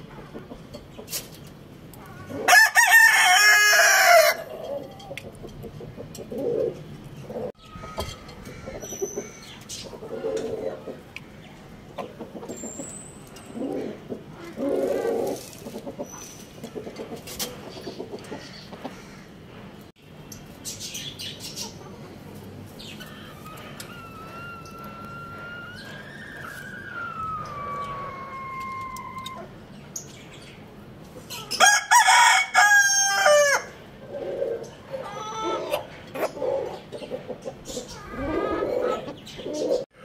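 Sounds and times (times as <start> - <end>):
rooster crowing: 2.2 - 4.5, 23.2 - 29.5, 31.6 - 33.8.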